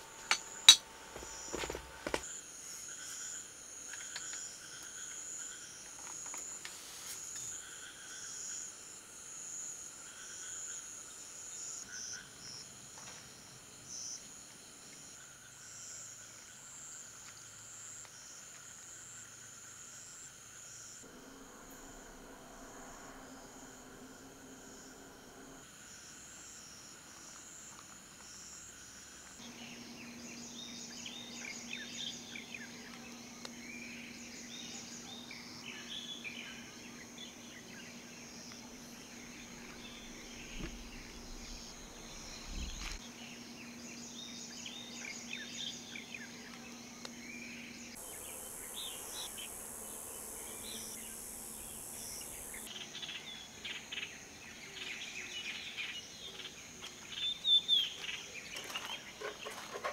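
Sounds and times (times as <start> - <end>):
high steady hiss: 0.0 - 43.1, 47.7 - 56.0
steady low hum: 21.0 - 25.7, 29.4 - 52.7
insects singing: 28.4 - 59.9
birds chirping: 48.0 - 52.7.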